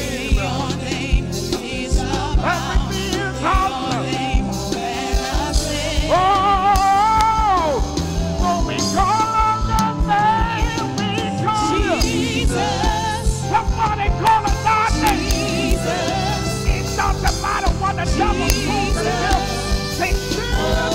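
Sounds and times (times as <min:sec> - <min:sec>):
band with bass and drums: 0:00.0 - 0:20.9
singers holding long notes: 0:11.5 - 0:13.5, 0:14.7 - 0:20.9.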